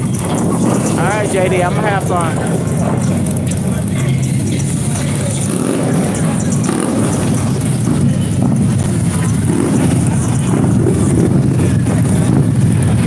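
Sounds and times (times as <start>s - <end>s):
motorcycle engines rumbling: 0.0s - 13.0s
motorcycle riding past: 0.0s - 13.0s.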